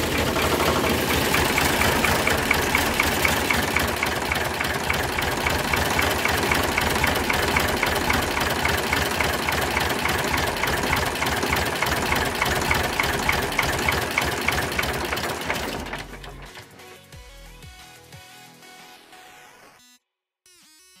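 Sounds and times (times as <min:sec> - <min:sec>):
sharp regular ticking: 0:00.0 - 0:15.8
tractor engine idling: 0:00.0 - 0:16.7.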